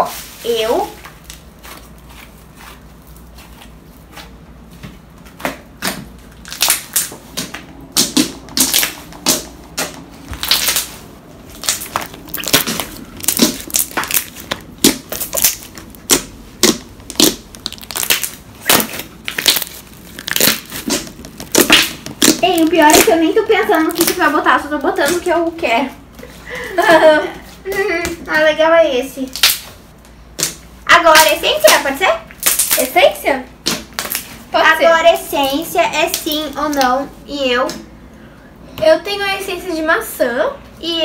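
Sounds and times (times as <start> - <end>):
slime popping and crackling: 5.8 - 25.5, 29.2 - 29.7, 30.4 - 34.4, 35.4 - 37.0.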